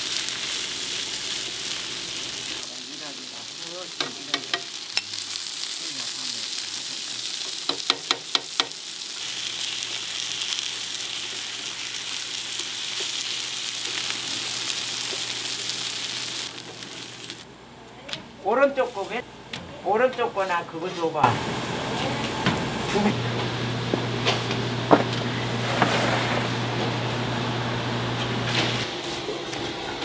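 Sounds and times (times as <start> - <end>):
food sizzling in oil: 0.0 - 17.5, 18.7 - 19.2.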